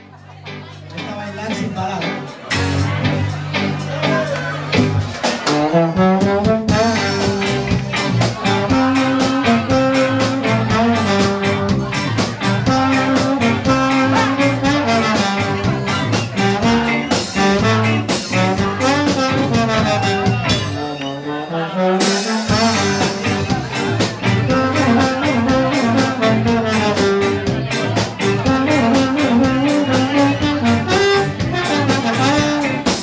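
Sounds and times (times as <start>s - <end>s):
electric guitars: 0.0s - 21.1s, 22.0s - 33.0s
steady drum beat: 4.6s - 20.8s, 22.0s - 33.0s
trombone melody: 5.4s - 7.6s, 8.4s - 23.5s, 24.3s - 27.5s, 28.2s - 33.0s.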